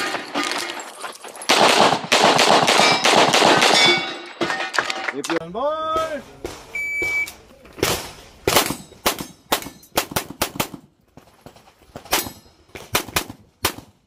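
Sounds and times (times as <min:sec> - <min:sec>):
pistol shots: 0:01.5 - 0:04.0
short beep: 0:06.8 - 0:07.4.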